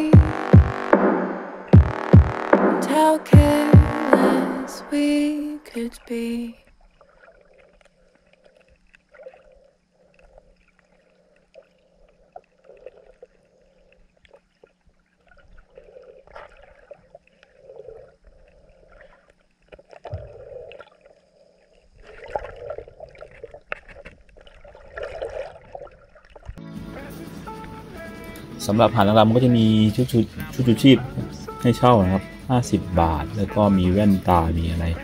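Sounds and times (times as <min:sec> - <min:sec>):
small waves lapping: 0:02.8 - 0:28.6.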